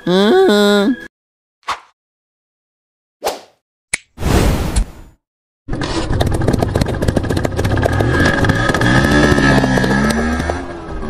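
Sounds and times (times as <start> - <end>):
scooter engine popping: 5.7 - 10.9.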